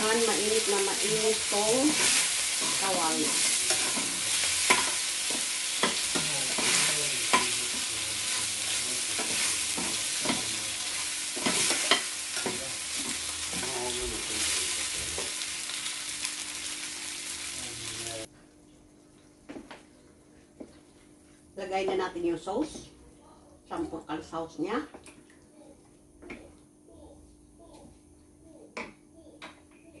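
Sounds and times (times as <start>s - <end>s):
chicken sizzling in frying pan: 0.0s - 18.3s
metal spoon scraping a pan: 1.8s - 13.8s.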